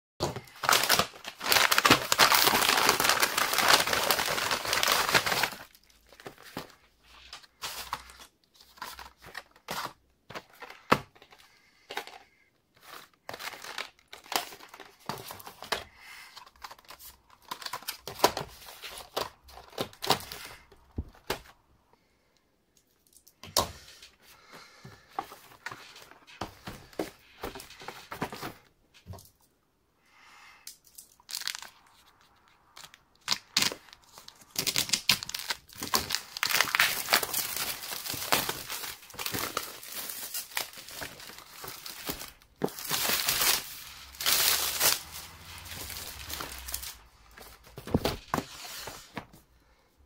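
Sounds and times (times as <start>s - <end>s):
plastic packaging crinkling and tearing: 0.2s - 10.0s, 12.8s - 16.0s, 31.0s - 49.0s
cardboard boxes handled: 24.8s - 29.2s, 35.7s - 49.4s.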